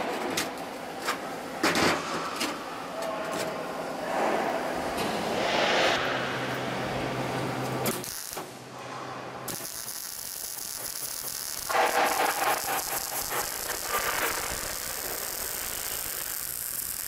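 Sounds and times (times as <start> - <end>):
welder arc crackling hiss: 7.9 - 8.5, 9.5 - 17.0.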